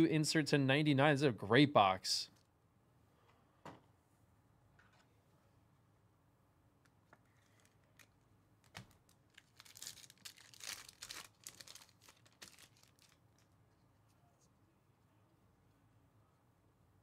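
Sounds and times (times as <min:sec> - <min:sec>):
foil wrapper tearing and crinkling: 0:07.5 - 0:13.5.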